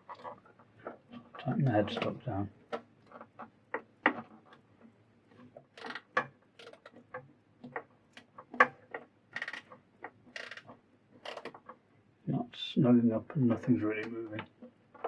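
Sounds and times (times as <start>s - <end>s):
wrench clicking on metal: 9.4s - 9.6s, 10.4s - 10.6s.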